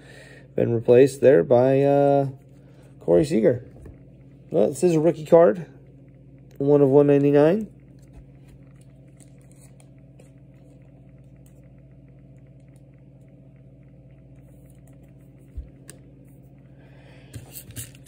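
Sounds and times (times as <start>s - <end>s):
steady low hum: 0.0s - 18.0s
card rustles: 8.0s - 10.8s.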